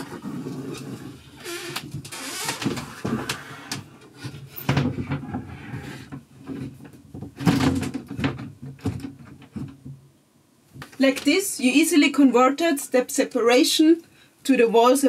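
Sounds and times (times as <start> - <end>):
wooden panels knocking: 4.6 - 10.0.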